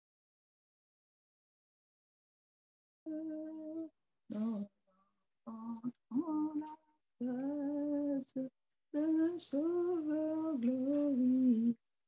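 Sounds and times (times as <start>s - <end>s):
woman singing unaccompanied: 3.1s - 4.8s, 5.5s - 11.9s.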